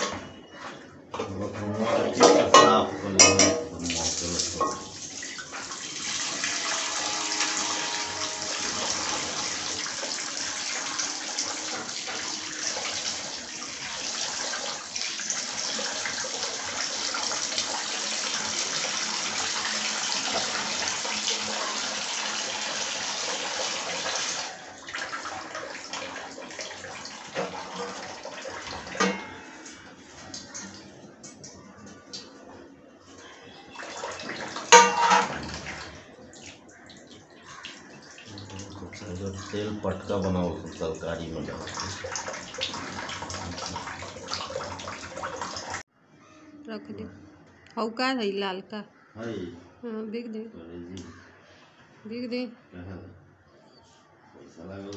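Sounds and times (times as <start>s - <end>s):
tap water splashing into a pan: 3.2s - 29.4s, 33.8s - 39.7s, 41.4s - 45.8s
handling and water sounds: 24.0s - 32.5s, 33.3s - 45.8s.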